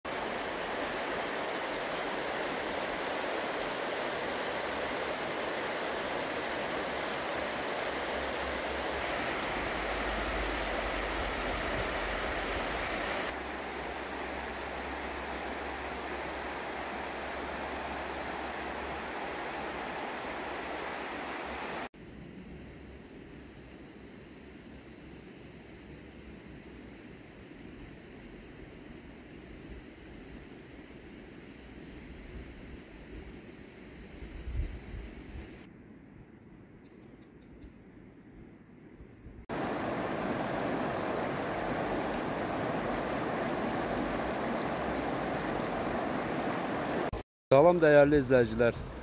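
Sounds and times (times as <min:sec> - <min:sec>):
river water rushing over stones: 0:00.1 - 0:21.9, 0:39.5 - 0:49.0.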